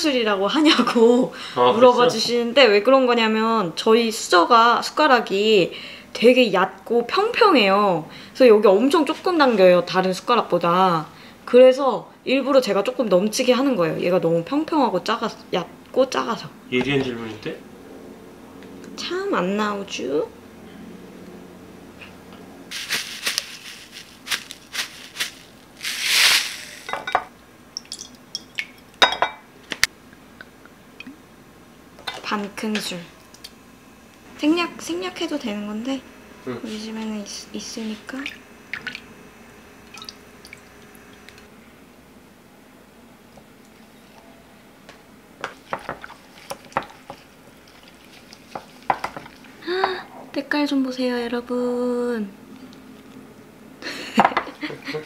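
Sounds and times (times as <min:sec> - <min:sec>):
sugar pouring from plastic bag: 0:22.7 - 0:26.9.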